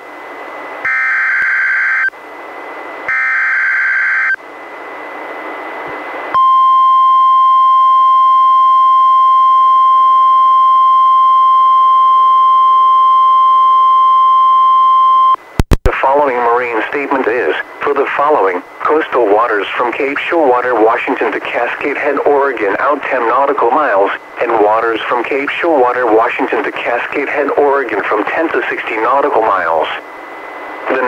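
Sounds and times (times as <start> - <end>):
steady warning alarm tone: 0.8 - 2.1, 3.1 - 4.4
radio hiss: 15.6 - 31.0.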